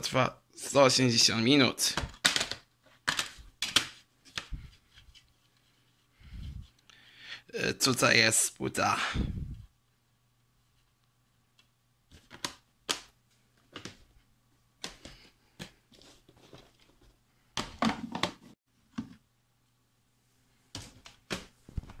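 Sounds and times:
plastic case clicks and knocks: 2.0s - 3.9s.

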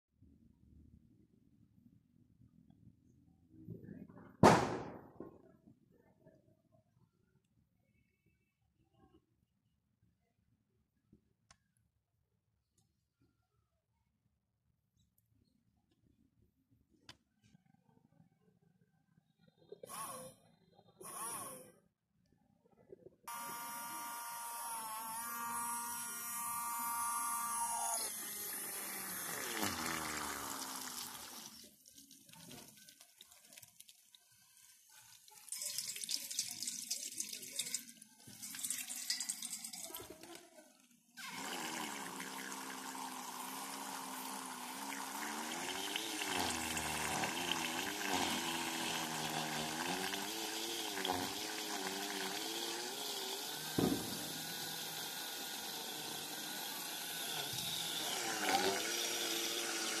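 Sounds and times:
small motor whining: 19.8s - 21.8s, 23.3s - 31.8s, 41.2s - 60.0s
water jet spraying into steel bowl: 28.3s - 33.9s, 34.5s - 40.2s, 41.2s - 60.0s.

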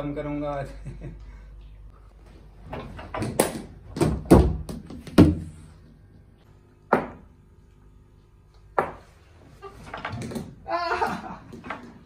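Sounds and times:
cricket ball knocks in tiled room: 3.0s - 5.6s, 6.9s - 7.4s, 8.7s - 9.1s.

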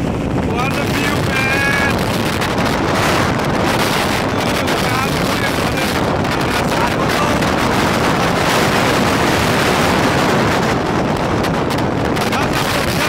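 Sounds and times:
wind rushing over microphone: 0.0s - 13.0s.

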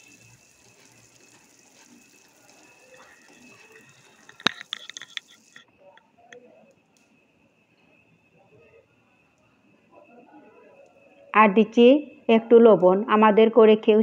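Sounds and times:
metal spoon stirring in a pan: 0.0s - 5.6s
nuts sizzling in a pan: 0.0s - 5.6s.

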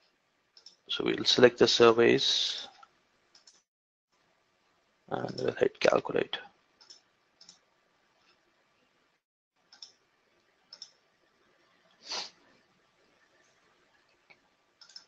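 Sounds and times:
faint computer mouse clicks: 9.7s - 10.0s, 10.7s - 11.0s, 14.8s - 15.0s.

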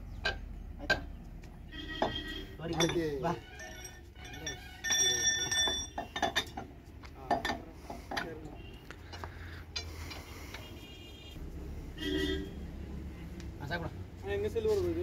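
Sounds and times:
metal tools clinking on wheel hub: 1.9s - 10.3s.

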